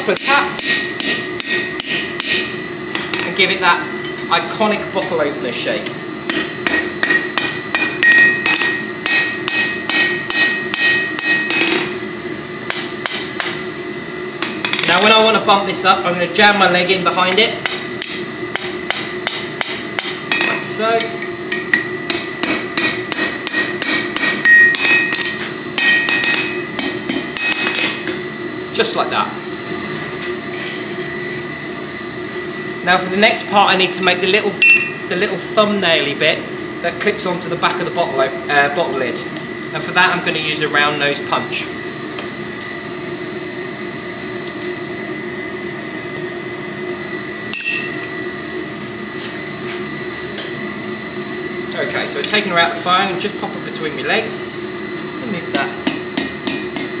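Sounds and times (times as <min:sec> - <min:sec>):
steady background hum: 0:00.0 - 0:57.0
hammer striking steel on anvil: 0:00.2 - 0:03.4, 0:05.8 - 0:11.9, 0:12.7 - 0:13.6, 0:17.3 - 0:28.2, 0:34.6 - 0:35.1, 0:47.5 - 0:48.0, 0:55.5 - 0:57.0.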